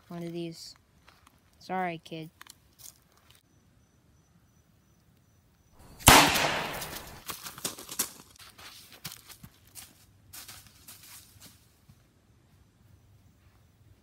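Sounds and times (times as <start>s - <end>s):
footsteps on gravel: 5.8s - 11.6s
loud bang: 5.9s - 7.2s.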